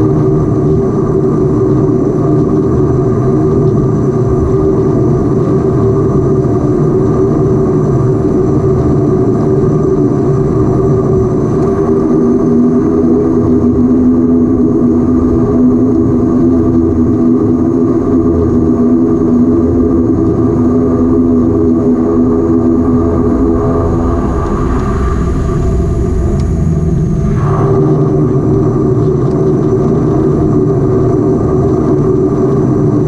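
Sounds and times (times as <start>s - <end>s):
turboprop engines droning: 0.0s - 33.0s.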